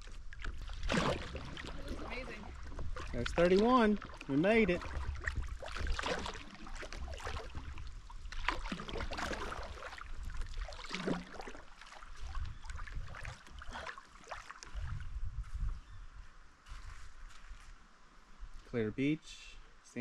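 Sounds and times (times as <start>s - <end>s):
wind rumbling on microphone: 0.0s - 11.1s, 12.0s - 13.8s, 14.6s - 17.8s
paddle splashing in water: 0.0s - 15.0s.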